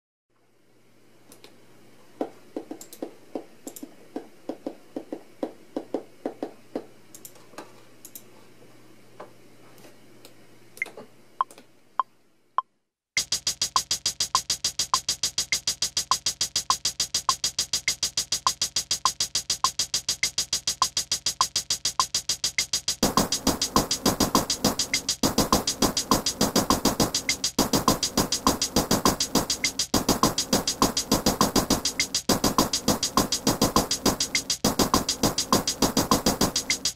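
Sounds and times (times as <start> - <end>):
electronic drum hits: 13.2 - 36.9
fast electronic beat: 13.2 - 36.9.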